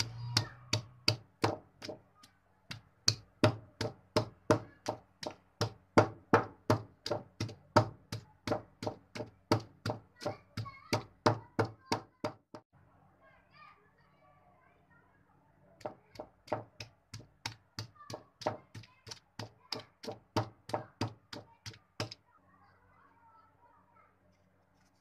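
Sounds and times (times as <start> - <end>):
pestle pounding in stone mortar: 0.0 - 2.0, 2.7 - 12.6, 15.8 - 22.2.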